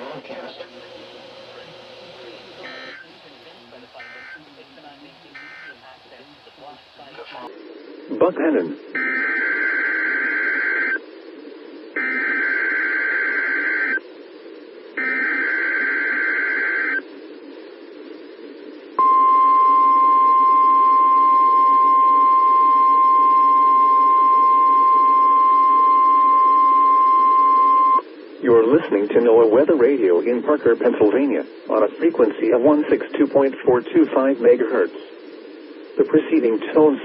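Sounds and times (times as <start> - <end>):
radio hiss: 0.0 - 37.0
steady warning alarm tone: 0.8 - 7.1, 12.0 - 14.0, 19.0 - 28.0
buzzy digital header bursts: 2.6 - 3.1, 5.3 - 5.8.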